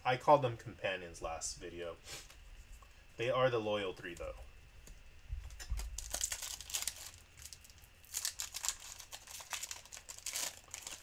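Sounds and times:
plastic and foil packaging crinkling: 5.5 - 11.0.

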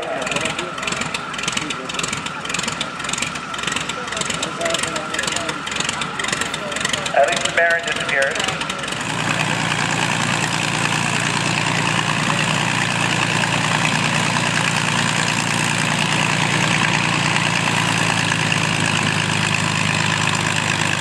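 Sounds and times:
propeller plane engine idling: 0.0 - 21.0.

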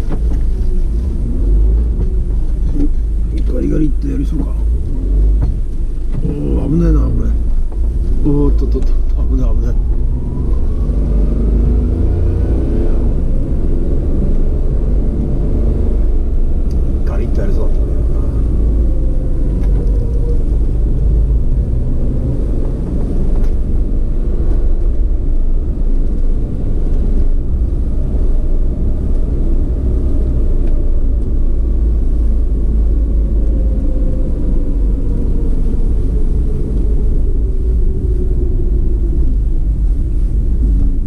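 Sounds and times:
road noise: 0.0 - 41.0
wind rumble on microphone: 0.0 - 41.0.

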